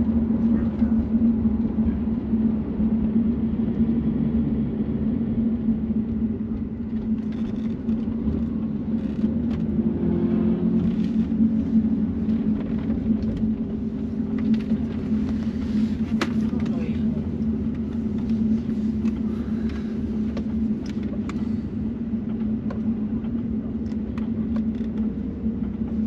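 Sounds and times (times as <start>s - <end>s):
car engine droning: 0.0s - 26.0s
tyre and road rumble: 6.5s - 26.0s.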